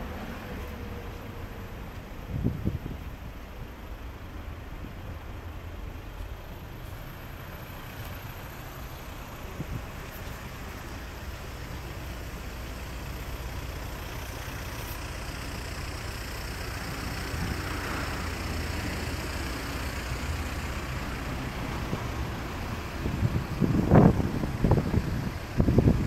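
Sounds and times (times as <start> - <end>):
road traffic rumble: 0.0 - 26.0
wind buffeting microphone: 2.2 - 3.4, 21.8 - 26.0.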